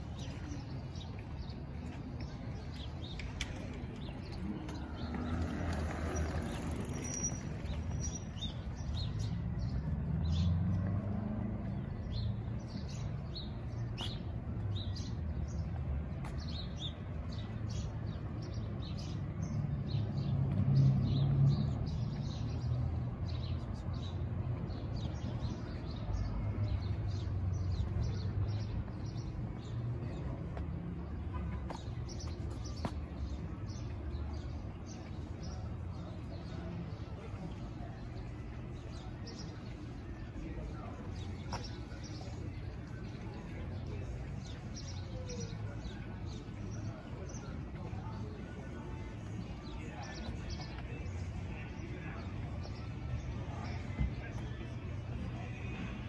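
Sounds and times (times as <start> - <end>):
small birds chirping: 26.9 - 55.8.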